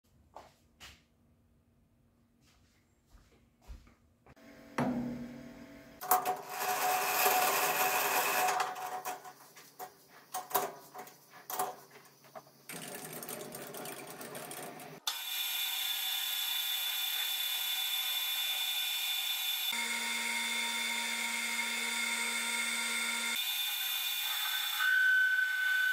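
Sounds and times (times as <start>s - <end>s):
metal lathe whining: 6.0s - 9.4s, 12.7s - 25.9s.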